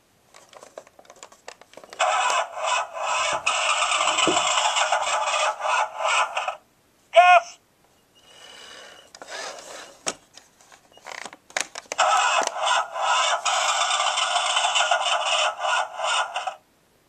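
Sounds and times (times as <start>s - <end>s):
toy hissing rush sound effect: 2.0s - 6.6s, 12.0s - 16.6s.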